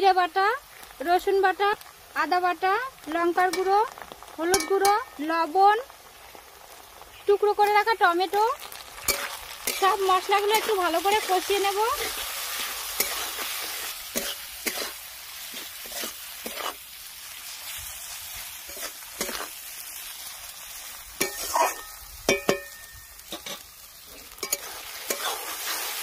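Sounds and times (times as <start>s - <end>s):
food sizzling in oil: 0.0s - 26.0s
spatula scraping and knocking pan: 14.1s - 16.8s, 18.7s - 19.5s, 21.2s - 23.6s, 24.3s - 25.9s.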